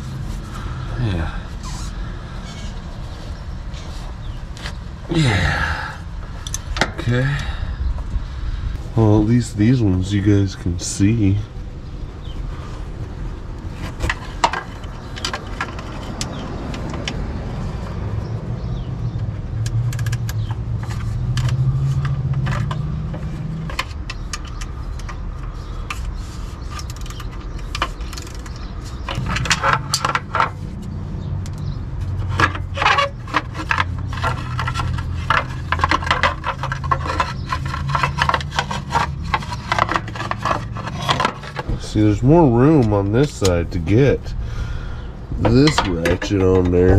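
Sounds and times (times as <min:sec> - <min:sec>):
metal tools scraping and clinking: 0:25.8 - 0:30.8, 0:31.5 - 0:44.3, 0:45.4 - 0:46.9.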